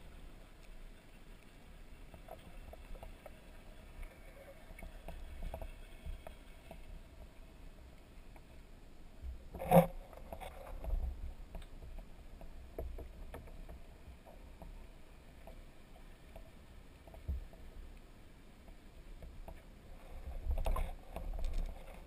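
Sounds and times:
small clicks: 0:20.4 - 0:22.0.

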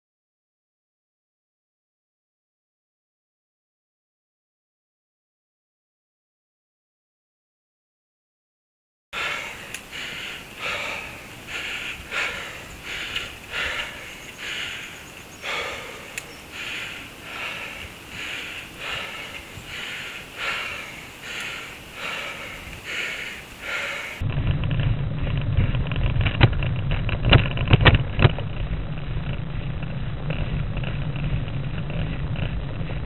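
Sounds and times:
heavy laboured breathing: 0:09.2 - 0:24.3.

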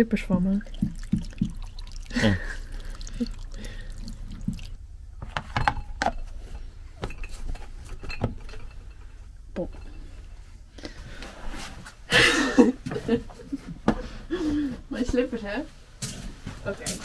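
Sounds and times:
water running from tap into bowl: 0:00.0 - 0:04.8.

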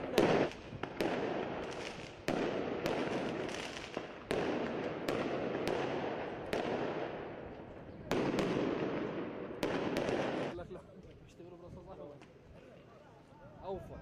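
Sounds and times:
sharp explosive bangs: 0:08.1 - 0:10.6.

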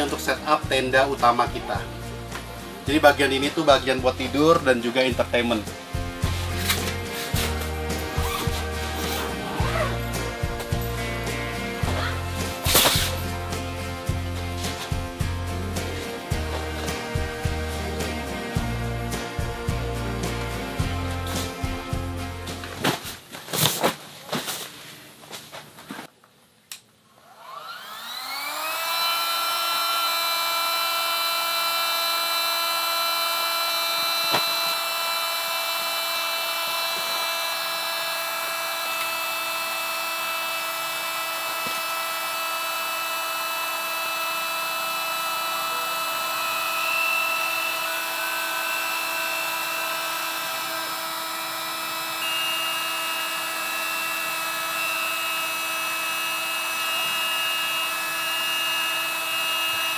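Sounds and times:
electric air pump whining: 0:00.0 - 0:23.0, 0:27.2 - 0:59.9.

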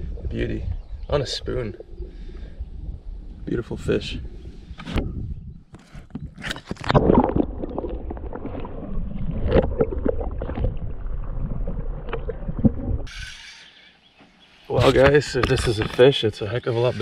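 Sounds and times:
water splashing: 0:06.5 - 0:13.1.

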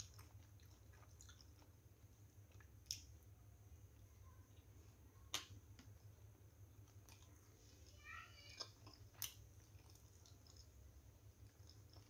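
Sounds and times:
close chewing: 0:00.0 - 0:03.1, 0:06.8 - 0:12.0.

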